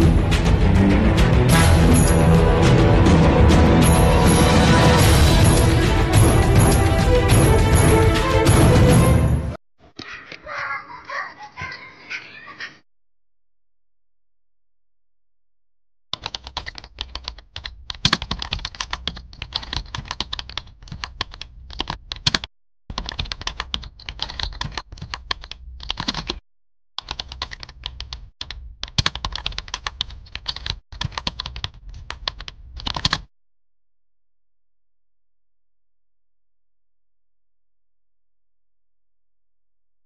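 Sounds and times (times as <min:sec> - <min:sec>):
typing on computer keyboard: 0:16.2 - 0:26.4, 0:27.0 - 0:33.3.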